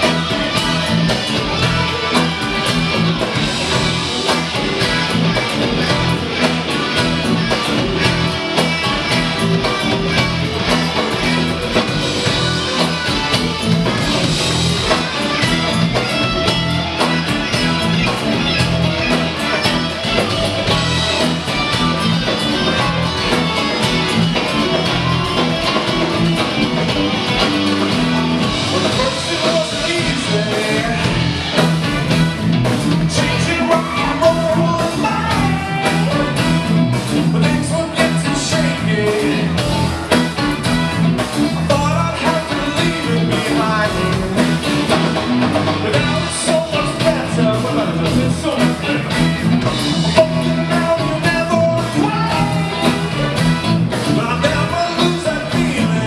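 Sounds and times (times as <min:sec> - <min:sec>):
live funk-rock band playing: 0:00.0 - 0:56.0
person singing: 0:28.2 - 0:31.6, 0:33.1 - 0:39.7, 0:41.6 - 0:45.1, 0:45.7 - 0:53.4, 0:54.1 - 0:56.0.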